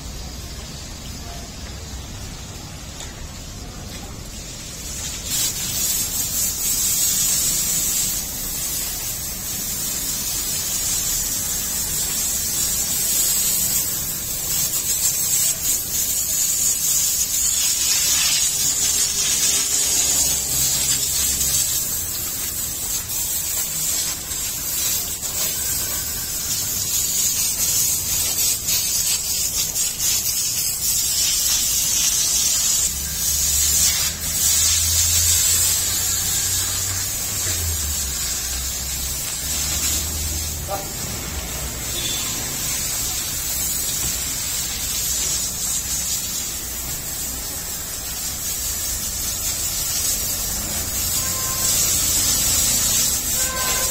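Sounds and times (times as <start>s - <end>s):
hose spraying water: 0.0s - 53.9s.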